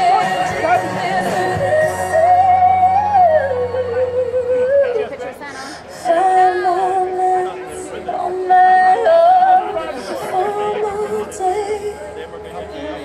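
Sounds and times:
high singing voice: 0.0 - 5.2.

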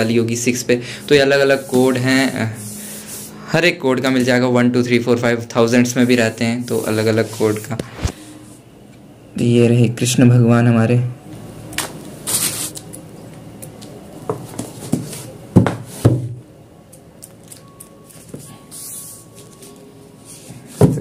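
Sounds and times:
book knocking on a board: 14.3 - 16.4.

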